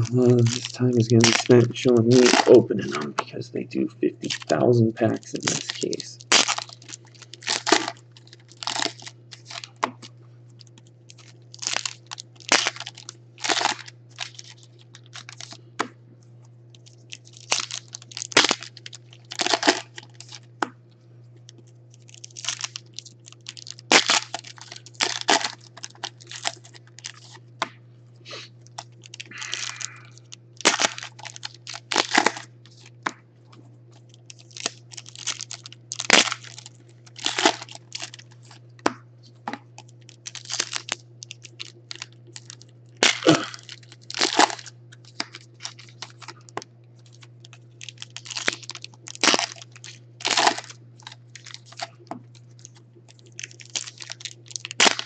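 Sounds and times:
foil packs tearing and crinkling: 0.0 - 3.1, 4.2 - 15.6, 16.8 - 20.5, 22.0 - 27.4, 28.3 - 32.9, 34.0 - 38.6, 39.8 - 55.0
steady low hum: 0.0 - 55.0.

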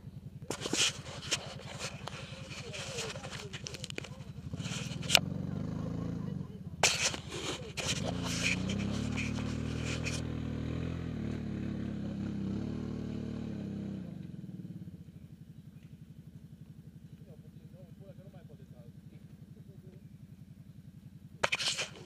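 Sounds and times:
quad engine revving: 0.5 - 15.0.

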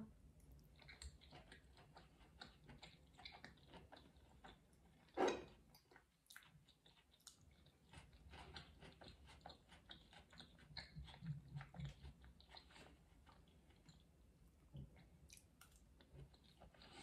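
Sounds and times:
wet mouth chewing clicks: 0.4 - 5.0.

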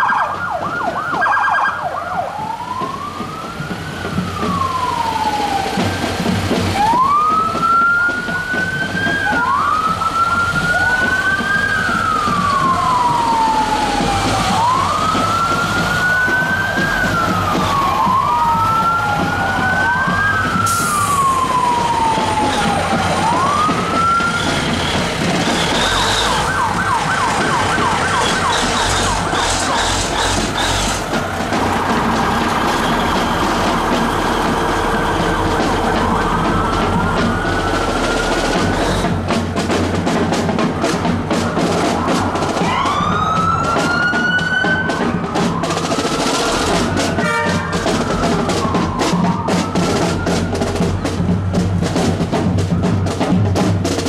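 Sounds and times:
siren fast yelp: 0.0 - 6.1, 6.7 - 31.0, 32.9 - 39.2, 41.3 - 51.2
siren wailing: 0.0 - 39.5, 40.4 - 51.6
engine and street noise: 0.0 - 54.0.

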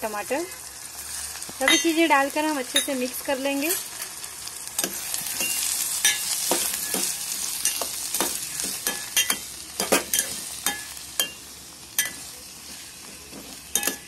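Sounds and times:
vegetables sizzling in hot fat: 0.0 - 14.0.

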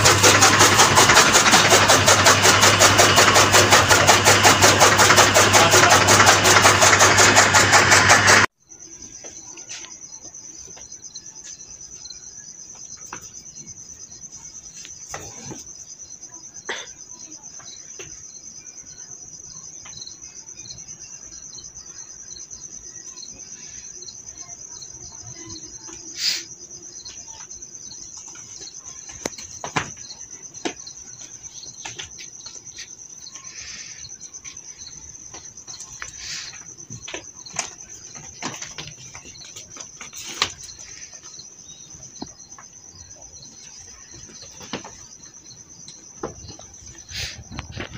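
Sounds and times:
electric chaff cutter running: 0.0 - 8.5
crickets chirping: 8.0 - 47.9.

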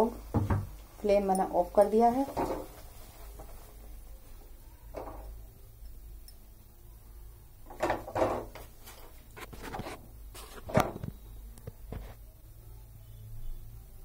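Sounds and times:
spoon scraping and knocking on pan: 2.1 - 3.7.

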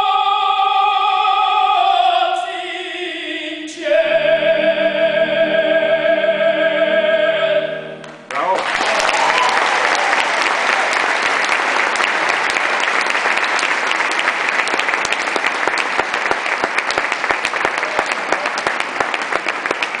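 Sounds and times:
audience applauding: 8.0 - 20.0.

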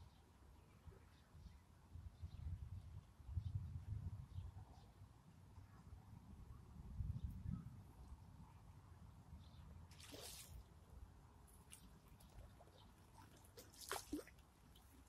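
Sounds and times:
faint water splashes and drips: 9.9 - 15.0.

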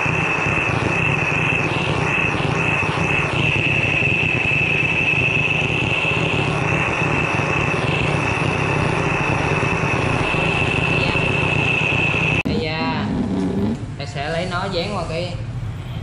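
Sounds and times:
gas torch flame hissing: 0.0 - 12.5
high whistle: 0.0 - 12.5.

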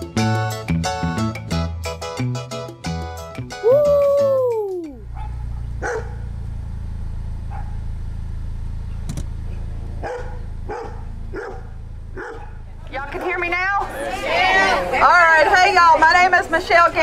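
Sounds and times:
swooping tone: 3.6 - 5.1
steady low rumble: 4.9 - 13.9
dog barking: 5.1 - 6.3, 7.5 - 7.8, 10.0 - 12.7.

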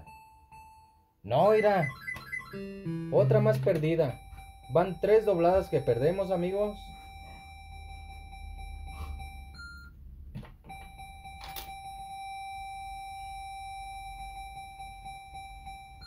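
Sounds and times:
steady beep tone: 0.0 - 10.0
short higher beep: 1.4 - 9.9
button clicks: 2.1 - 4.0.

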